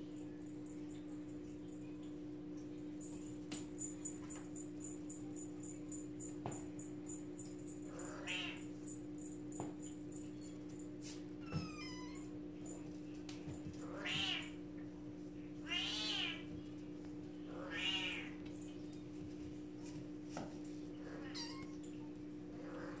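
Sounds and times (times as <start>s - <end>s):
kitten meowing: 8.0s - 8.6s, 11.4s - 12.3s, 15.6s - 16.4s, 17.6s - 18.3s, 21.2s - 21.9s.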